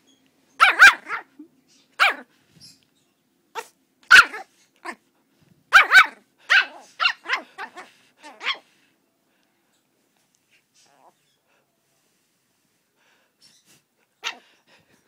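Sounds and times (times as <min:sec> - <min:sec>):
puppy barking: 0:00.6 - 0:01.3, 0:02.0 - 0:02.3, 0:03.5 - 0:05.0, 0:05.7 - 0:08.7, 0:14.2 - 0:14.5.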